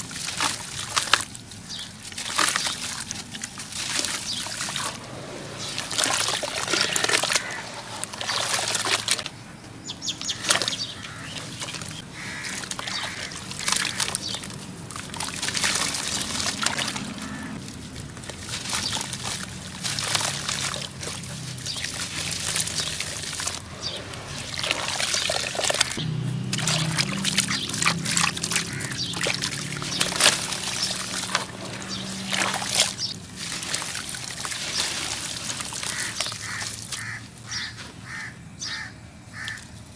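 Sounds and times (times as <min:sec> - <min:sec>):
grit trickling into water: 0:00.0 - 0:09.3, 0:09.9 - 0:37.8
small water splashes: 0:00.0 - 0:38.3.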